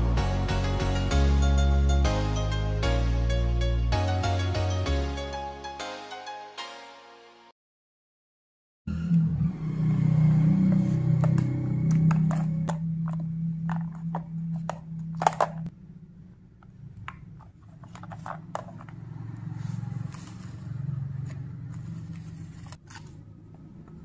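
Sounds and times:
low hum: 8.9 - 17.1
phone and cable handling clicks: 11.9 - 15.7.

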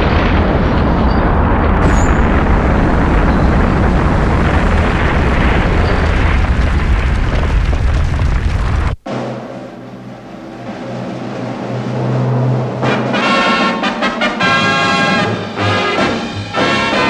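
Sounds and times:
sustained brass music: 9.1 - 17.0.

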